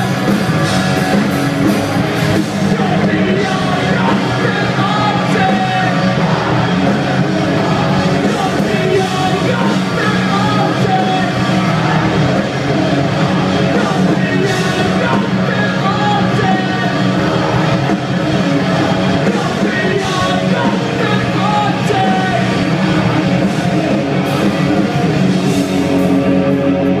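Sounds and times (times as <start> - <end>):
drums: 0.0 - 27.0
electric guitars: 0.0 - 27.0
person singing and shouting: 2.4 - 6.6, 7.5 - 12.4, 13.6 - 17.5, 19.1 - 24.2.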